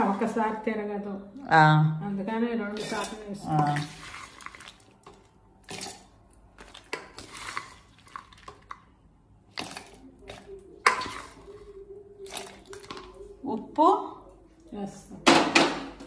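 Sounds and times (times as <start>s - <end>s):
spatula clinking and scraping metal: 2.8s - 6.0s, 6.6s - 8.7s, 9.6s - 11.6s.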